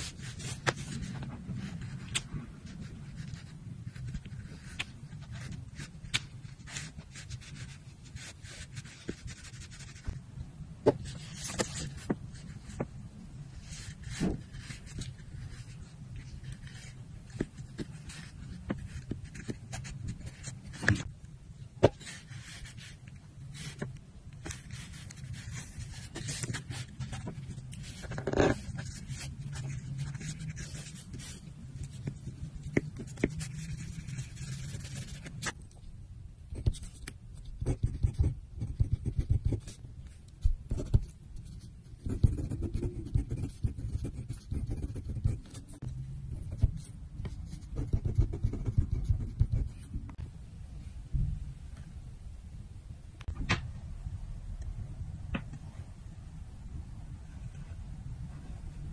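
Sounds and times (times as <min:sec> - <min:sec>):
pen writing on paper: 0:06.6 - 0:10.0, 0:23.6 - 0:35.6, 0:37.6 - 0:39.8, 0:40.7 - 0:45.8, 0:46.5 - 0:50.0.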